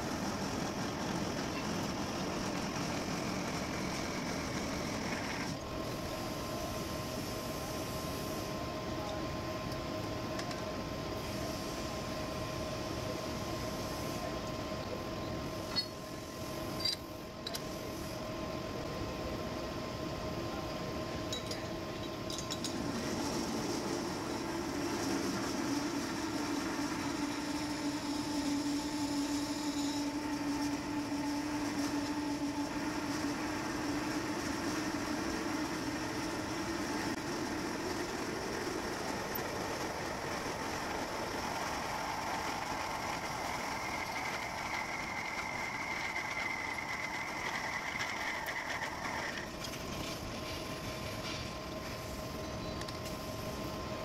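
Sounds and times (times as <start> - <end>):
metal lathe running: 0.0 - 5.6, 22.4 - 49.5.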